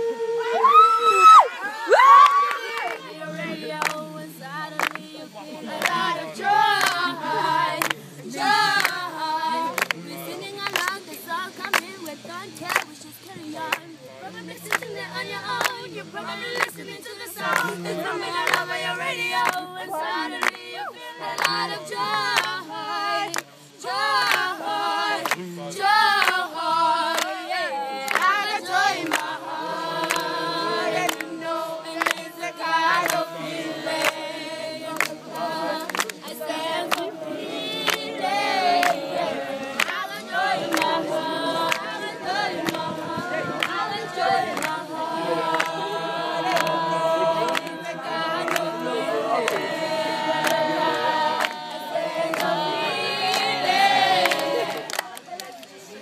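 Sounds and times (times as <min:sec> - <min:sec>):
young voices singing unaccompanied: 0:00.0 - 0:56.0
hand claps: 0:03.8 - 0:04.1, 0:04.7 - 0:09.1, 0:09.7 - 0:13.9, 0:14.6 - 0:15.9, 0:16.5 - 0:18.8, 0:19.4 - 0:19.7, 0:20.4 - 0:20.6, 0:21.4 - 0:22.6, 0:23.3 - 0:24.5, 0:25.2 - 0:25.5, 0:26.2 - 0:26.5, 0:27.1 - 0:27.4, 0:28.1 - 0:30.4, 0:31.0 - 0:32.3, 0:32.9 - 0:34.3, 0:34.9 - 0:44.8, 0:45.5 - 0:49.7, 0:50.3 - 0:55.8.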